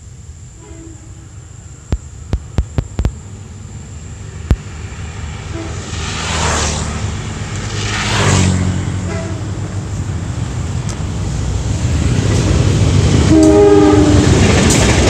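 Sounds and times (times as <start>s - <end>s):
sharp clicks: 1.9s - 3.2s
vehicles passing close by: 2.2s - 15.0s.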